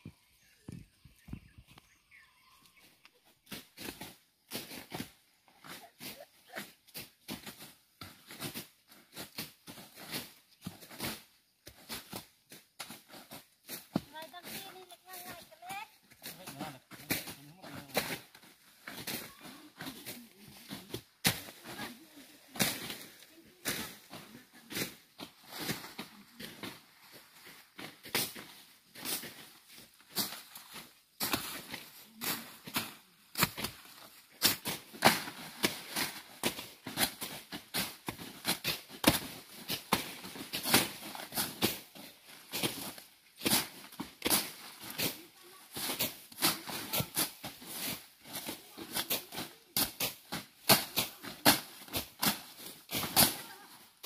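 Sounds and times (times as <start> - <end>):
rustling leaves: 0.1 - 54.0
blade swishing through grass: 17.0 - 53.7
machete swishing through grass: 18.8 - 26.8.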